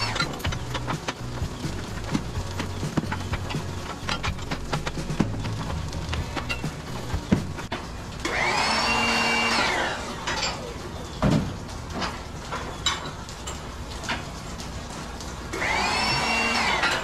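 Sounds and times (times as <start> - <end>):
power tool motor spinning: 0.0 - 7.6, 8.3 - 10.2, 15.5 - 17.0.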